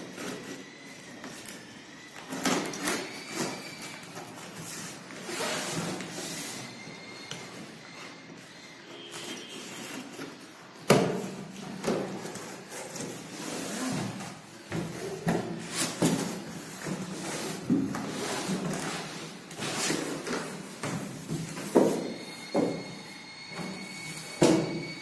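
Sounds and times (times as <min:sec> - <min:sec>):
cardboard box rustling and scraping: 0:02.8 - 0:06.8, 0:09.0 - 0:22.7.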